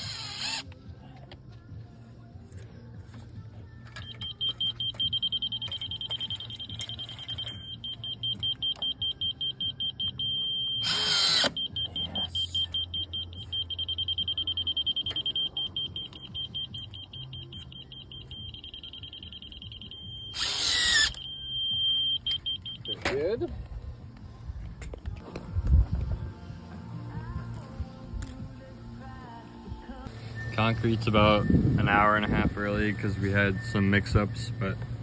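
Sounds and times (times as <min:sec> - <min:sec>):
rapid high beeping: 0:04.0 - 0:23.0.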